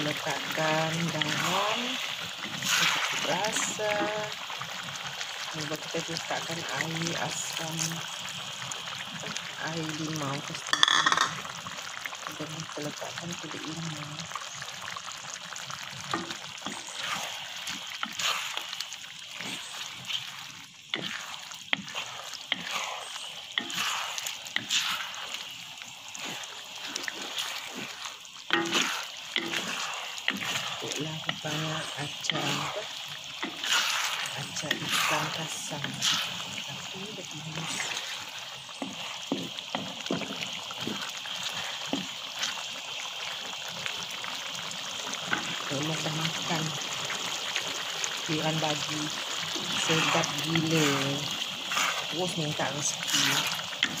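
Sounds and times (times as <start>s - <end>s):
spatula stirring food in a wok: 0.0s - 12.3s, 13.1s - 54.0s
spatula knocking against pan: 10.7s - 11.4s.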